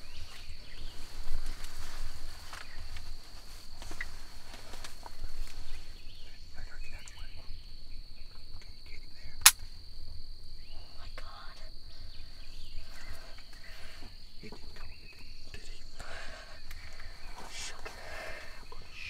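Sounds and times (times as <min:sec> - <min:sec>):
high-pitched insect drone: 0:00.0 - 0:19.0
sharp click: 0:09.4 - 0:09.7.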